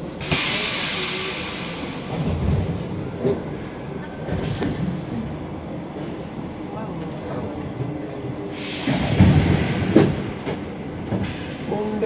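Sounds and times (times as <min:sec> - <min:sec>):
low train rumbling: 0:00.0 - 0:12.0
compressed air hiss: 0:00.2 - 0:02.2, 0:08.5 - 0:09.0.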